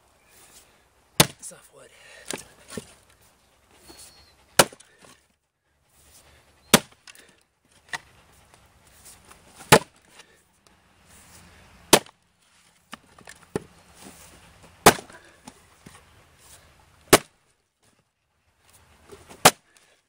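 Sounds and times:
axe chopping wood: 1.2 - 1.5, 4.6 - 5.2, 6.7 - 8.0, 9.6 - 10.3, 11.9 - 12.2, 12.9 - 13.7, 14.8 - 15.6, 17.1 - 17.4, 19.3 - 19.8.

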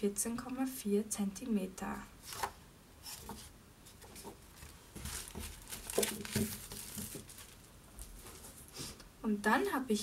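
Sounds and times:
paper in plastic wrapper rustling: 4.2 - 8.7.

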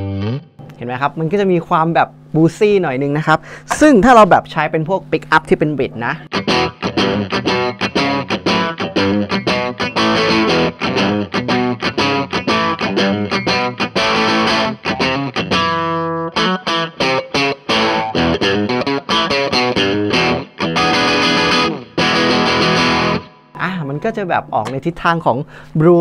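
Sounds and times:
overdriven electric guitar: 5.9 - 24.9.

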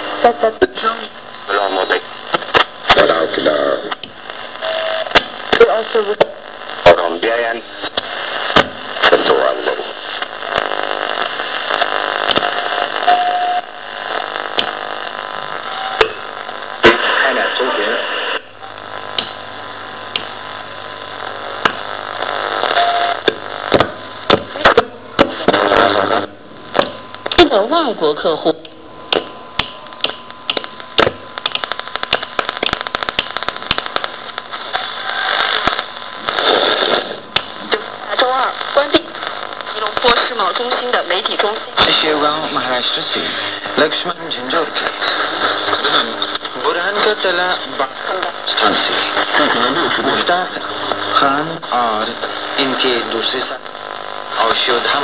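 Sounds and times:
radio static hiss: 0.0 - 55.0
snatches of radio broadcast: 0.0 - 55.0
crackling clicks: 1.3 - 3.0, 3.9 - 6.9, 7.8 - 17.1, 18.4 - 25.6, 26.7 - 27.5, 28.6 - 41.9, 42.6 - 55.0
tuning knob clicks: 28.6 - 33.8.

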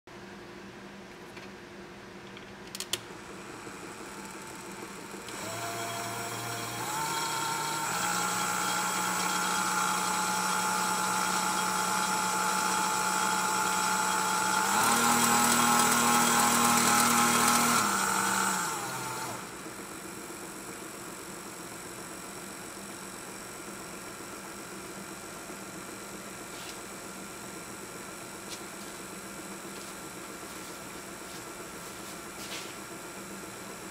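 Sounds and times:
toy circular saw whining: 5.3 - 19.5.

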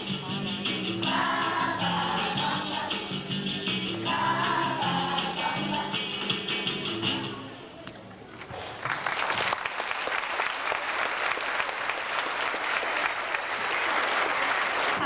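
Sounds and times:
audience applauding: 8.6 - 15.0.

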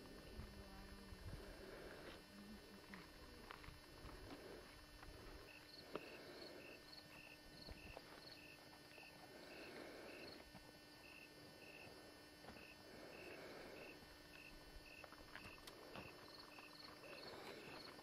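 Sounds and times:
cricket chirping: 5.4 - 18.0.

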